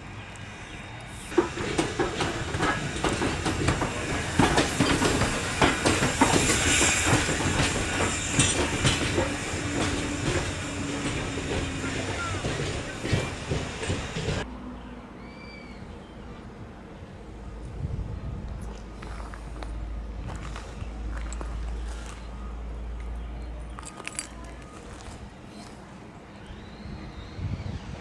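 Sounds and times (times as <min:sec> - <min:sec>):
steam locomotive rolling: 0:00.4 - 0:14.5
wheels clacking over rail joints: 0:01.3 - 0:14.5.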